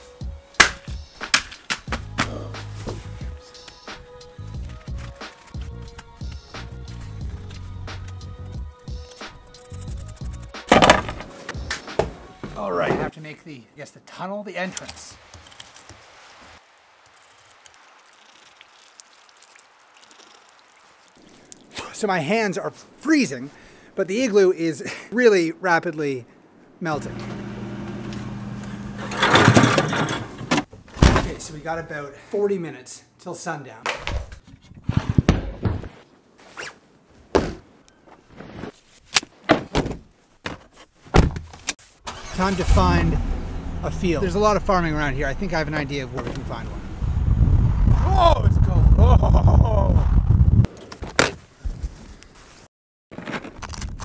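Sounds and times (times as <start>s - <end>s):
knocks and handling noises: 10.7s - 13.1s, 37.3s - 41.8s.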